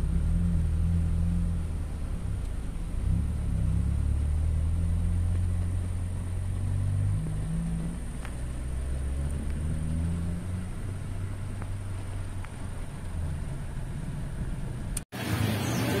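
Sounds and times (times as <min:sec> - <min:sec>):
vehicle engine rumbling: 0:00.0 - 0:16.0.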